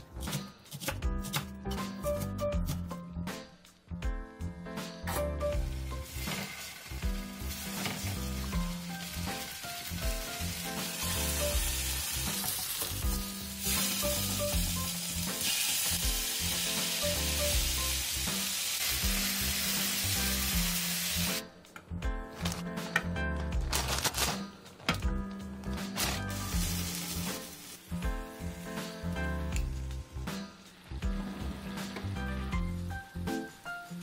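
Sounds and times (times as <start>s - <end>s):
tofu sizzling in a pan: 5.6s - 21.4s, 26.4s - 28.0s.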